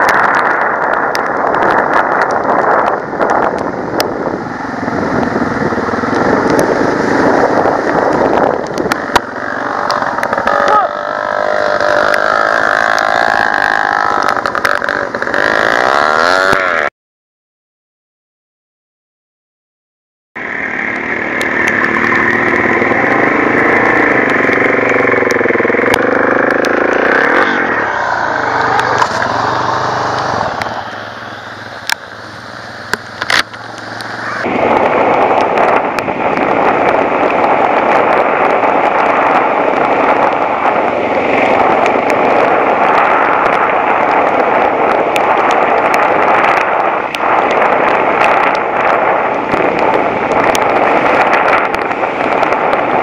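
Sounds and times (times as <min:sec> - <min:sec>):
dirt bike engine revving: 0:09.0 - 0:16.9, 0:22.0 - 0:30.9.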